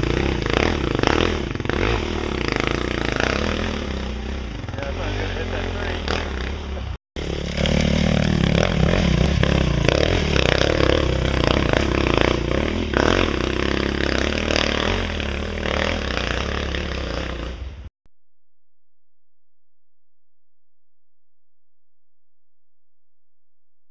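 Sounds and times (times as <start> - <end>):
dirt bike engine revving: 0.0 - 17.9.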